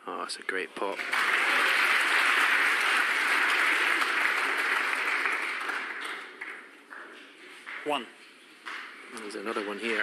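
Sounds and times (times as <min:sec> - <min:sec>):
audience applauding: 0:00.9 - 0:07.2.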